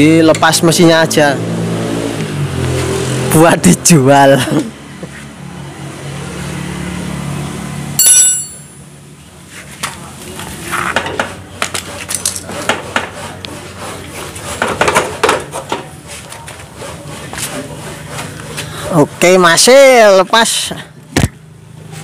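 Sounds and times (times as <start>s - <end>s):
wrench clinking on metal: 8.0s - 8.8s.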